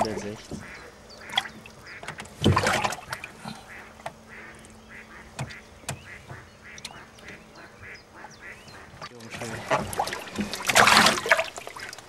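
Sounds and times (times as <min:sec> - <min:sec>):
ducks quacking: 0:00.0 - 0:12.0
water splashing: 0:00.0 - 0:12.0
sharp clicks: 0:05.4 - 0:07.4.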